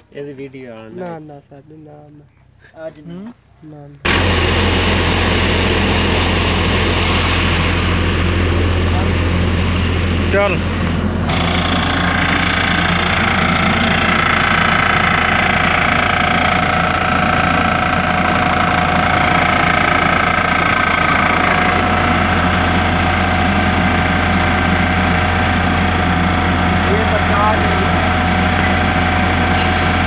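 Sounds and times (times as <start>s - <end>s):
hydraulic pump motor humming: 4.0s - 30.0s.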